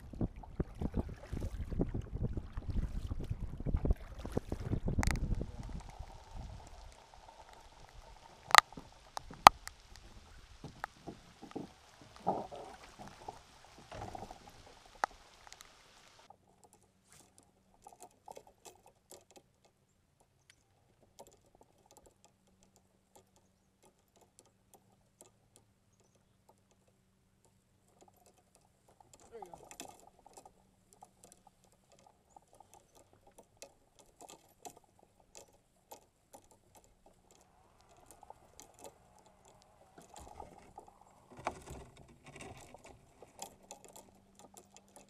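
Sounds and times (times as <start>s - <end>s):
wind buffeting microphone: 0.0s - 15.3s
small ticks: 4.9s - 45.0s
steady hiss: 5.4s - 16.3s.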